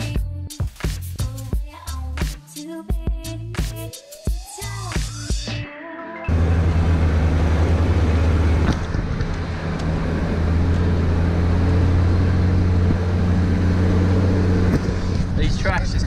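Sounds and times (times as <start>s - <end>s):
car engine running: 6.3s - 16.0s
tyre and road noise: 6.3s - 16.0s.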